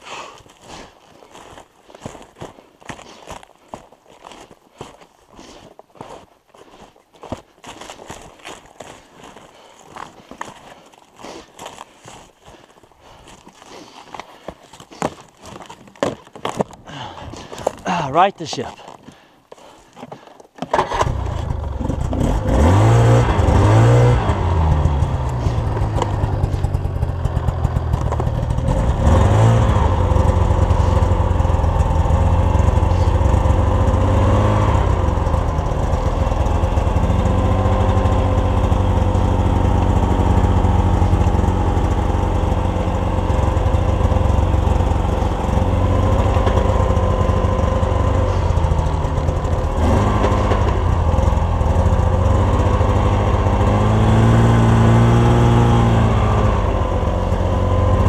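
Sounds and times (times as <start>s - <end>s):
snowmobile engine revving: 20.8s - 58.0s.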